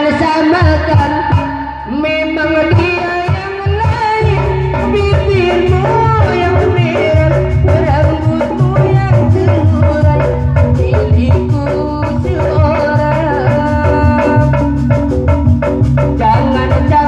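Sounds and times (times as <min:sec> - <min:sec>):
person singing: 0:00.0 - 0:15.1, 0:16.2 - 0:17.0
drums driving beat: 0:00.0 - 0:17.0
pitched melody instruments: 0:02.5 - 0:17.0.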